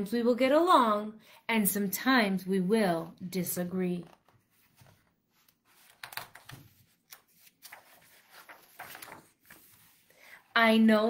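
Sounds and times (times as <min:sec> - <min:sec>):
paper rustling: 0:04.0 - 0:10.5.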